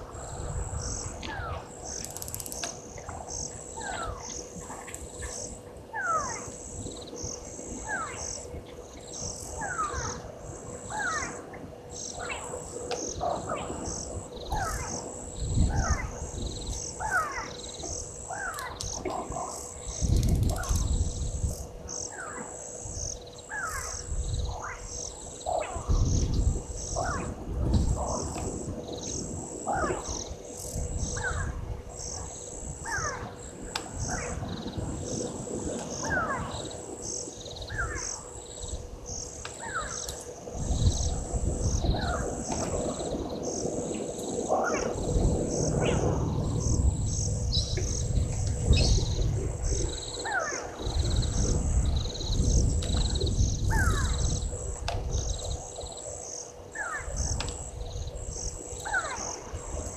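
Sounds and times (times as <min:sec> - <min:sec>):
insects chorus: 0:00.0 - 0:59.9
bird calling: 0:00.4 - 0:54.5, 0:56.7 - 0:57.6, 0:58.8 - 0:59.6
low rumble: 0:40.7 - 0:50.2.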